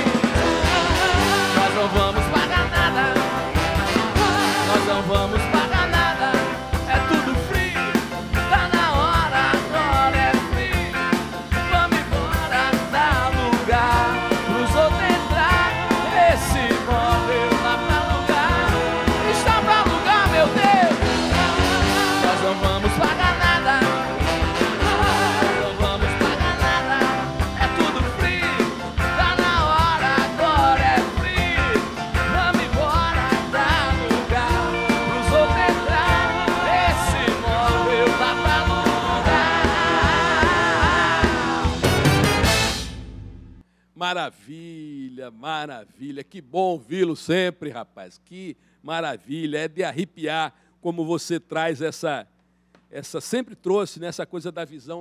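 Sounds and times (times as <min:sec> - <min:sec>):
trumpet and trombone: 0:00.0 - 0:06.3, 0:13.3 - 0:43.1
man singing: 0:00.0 - 0:42.0
electric guitars: 0:00.0 - 0:43.5
bass guitar: 0:00.0 - 0:43.6
keyboard: 0:00.0 - 0:43.6
drums: 0:00.0 - 0:43.9.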